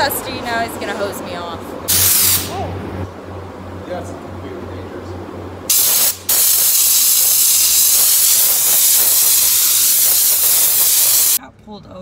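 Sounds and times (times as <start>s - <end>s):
compressed air hose hissing: 1.9s - 2.6s, 5.7s - 11.4s.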